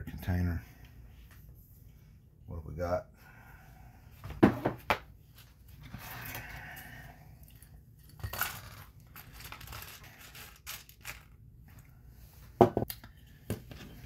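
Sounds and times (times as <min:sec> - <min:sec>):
plastic parts clicking and rattling: 0:08.1 - 0:11.4.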